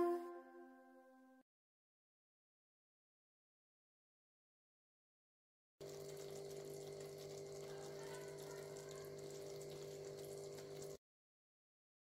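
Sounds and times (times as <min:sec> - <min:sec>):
curry simmering with hiss and crackle: 0:05.8 - 0:11.0.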